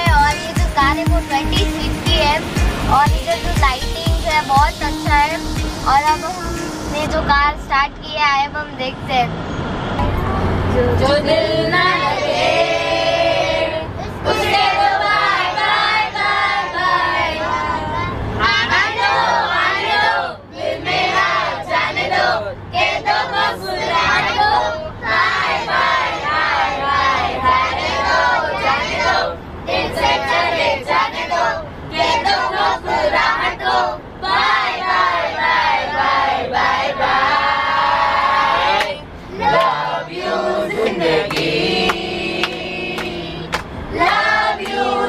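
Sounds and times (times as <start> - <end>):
girl singing: 0.0 - 5.2
vehicle hum: 0.0 - 45.0
women and girls singing: 10.7 - 45.0.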